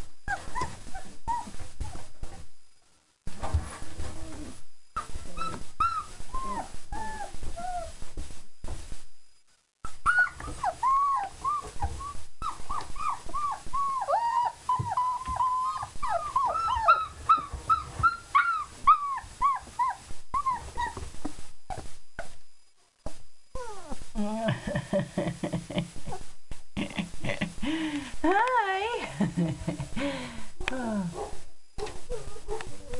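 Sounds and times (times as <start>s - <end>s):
puppies whining and whimpering: 0.2s - 2.5s, 4.0s - 8.0s, 9.9s - 21.1s, 23.5s - 24.4s.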